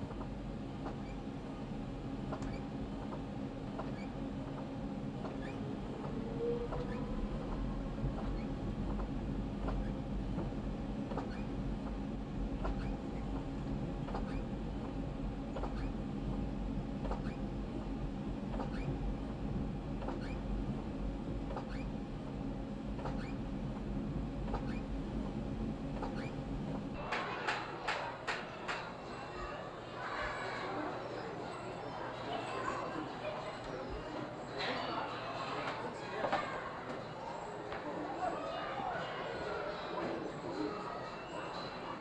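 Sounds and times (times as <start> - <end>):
train motor hum: 0.0 - 29.6.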